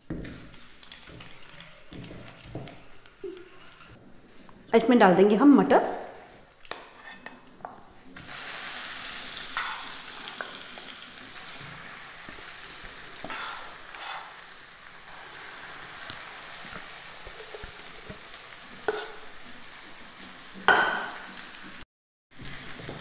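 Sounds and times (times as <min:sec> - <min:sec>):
spoon scraping and stirring: 0:00.2 - 0:04.0, 0:06.4 - 0:08.2, 0:09.4 - 0:10.8, 0:13.2 - 0:14.4, 0:16.1 - 0:19.4
peas sizzling in hot oil: 0:06.5 - 0:21.8, 0:22.4 - 0:23.0.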